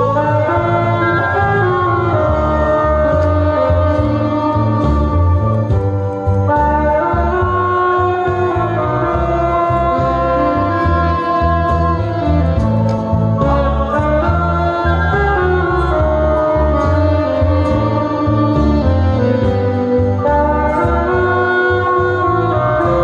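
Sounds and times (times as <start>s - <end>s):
live band music: 0.0s - 23.0s
pulsing bass beat: 0.0s - 23.0s
woman singing: 8.0s - 19.0s.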